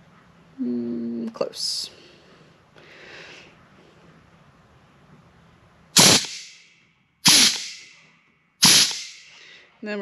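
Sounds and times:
air snips cutting wire: 7.3s - 7.9s, 8.6s - 9.3s.

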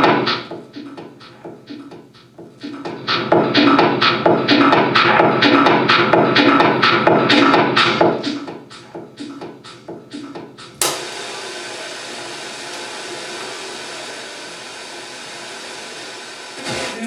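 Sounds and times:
music from radio loudspeaker: 0.0s - 17.0s
sharp click: 10.8s - 11.0s.

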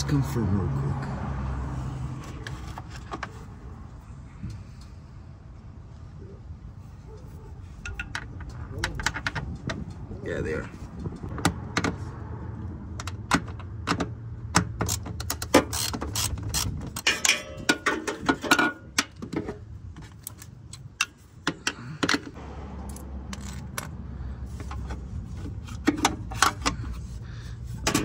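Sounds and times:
tools clinking against metal: 16.6s - 19.1s.

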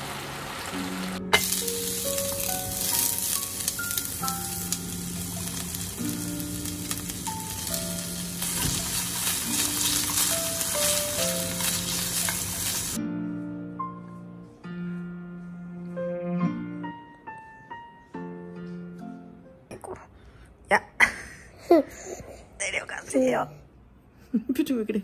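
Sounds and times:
food sizzling in hot oil: 0.0s - 13.0s
slow keyboard melody: 0.7s - 8.6s, 9.2s - 19.7s.

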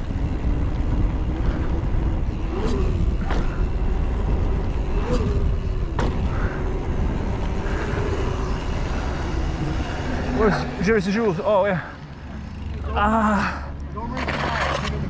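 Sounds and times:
bike knocks and rattles: 0.0s - 6.8s
wind buffeting camera: 0.0s - 10.9s
tyre and frame rumble: 0.0s - 11.9s.

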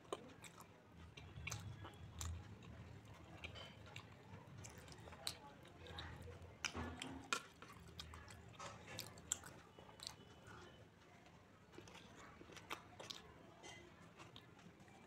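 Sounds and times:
person chewing soft food: 0.0s - 15.0s.

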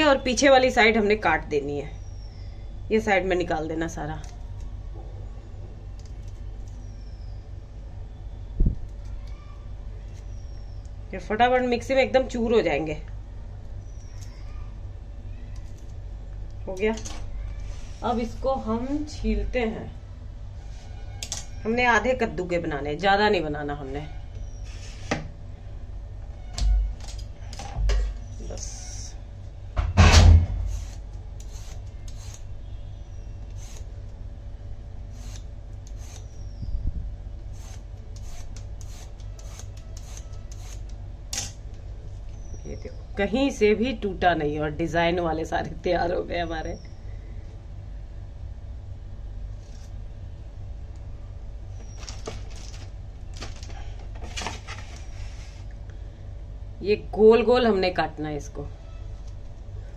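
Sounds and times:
steady low hum: 0.0s - 59.9s
peeler scraping gourd skin: 37.5s - 41.0s, 49.6s - 50.0s.

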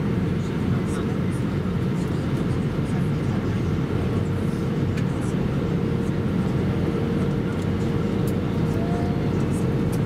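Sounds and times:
airplane cabin rumble: 0.0s - 10.0s.

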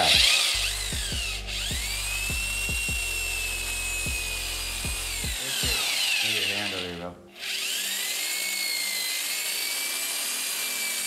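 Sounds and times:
background music with beat: 0.0s - 6.0s
electric drill motor whining: 0.0s - 11.0s.

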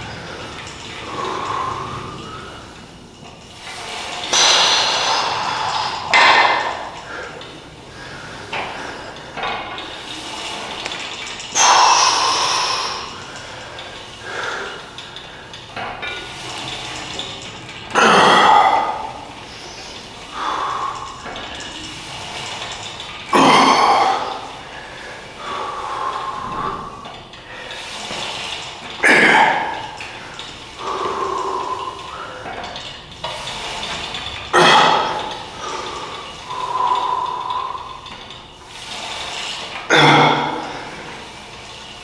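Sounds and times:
soft breathing: 0.0s - 3.1s, 3.7s - 10.7s, 11.6s - 15.6s, 18.5s - 22.6s, 23.8s - 28.8s, 29.4s - 33.8s, 34.7s - 39.4s.

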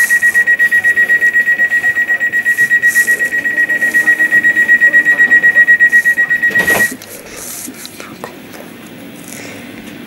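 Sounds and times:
rapid electronic warning beeps: 0.0s - 7.0s.

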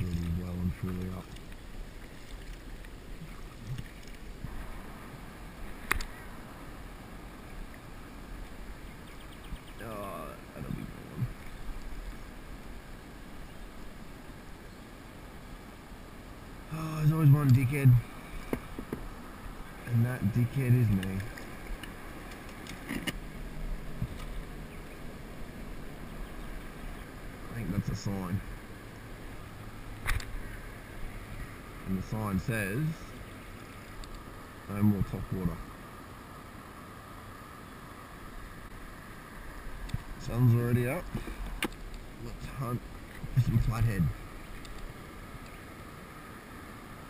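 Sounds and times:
water sloshing around kayak: 0.0s - 9.8s
water lapping around a kayak: 0.0s - 27.6s, 33.0s - 47.0s
wind hiss on microphone: 0.0s - 47.0s
sharp click: 5.8s - 6.2s, 30.0s - 30.3s.

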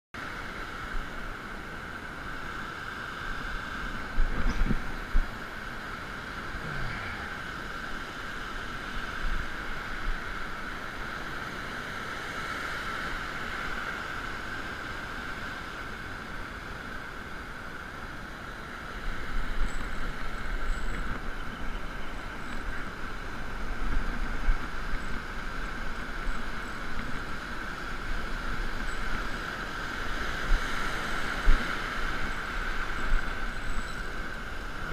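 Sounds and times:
ocean surf breaking: 0.2s - 34.9s
wind buffeting microphone: 3.3s - 11.4s.

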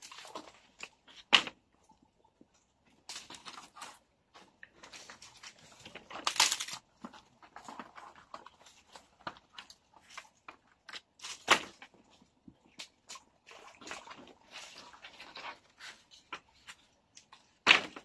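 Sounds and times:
dry wood and leaves crunching: 2.9s - 18.0s
dry sticks snapping: 6.1s - 6.8s.

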